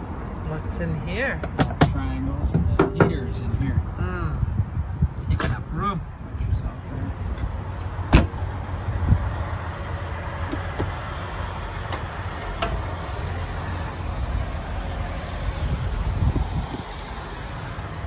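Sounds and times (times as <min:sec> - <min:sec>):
diesel truck idling: 0:07.9 - 0:18.0
thump: 0:08.1 - 0:08.4.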